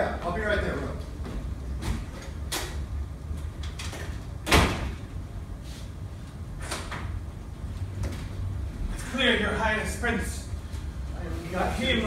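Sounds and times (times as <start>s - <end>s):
door shutting with loud thud: 4.4s - 5.0s.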